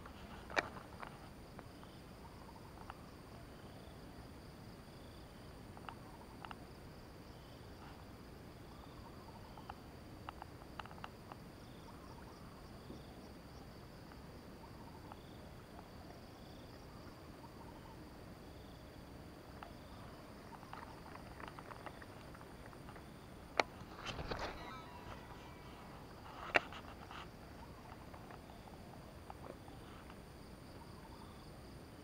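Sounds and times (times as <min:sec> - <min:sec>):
short insect chirps: 0:04.9 - 0:31.7
faint clicks: 0:05.8 - 0:06.6, 0:09.6 - 0:11.4, 0:19.6 - 0:19.8
high-pitched insect drone: 0:19.6 - 0:29.0.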